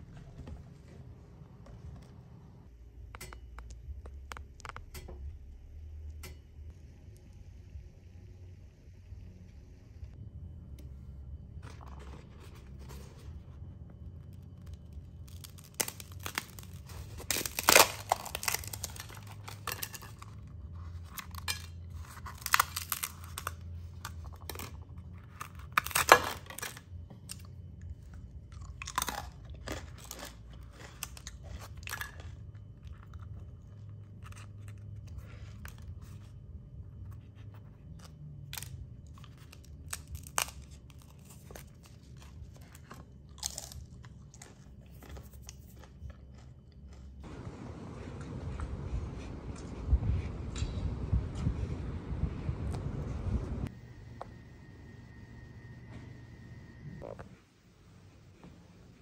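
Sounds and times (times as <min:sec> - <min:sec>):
bread crust crunching: 0:11.6 - 0:48.9.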